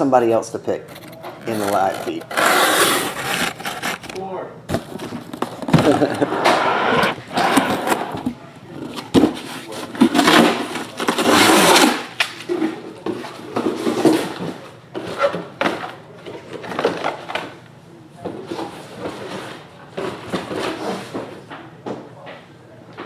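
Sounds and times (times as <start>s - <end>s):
rustling and handling noises: 0.8s - 6.0s.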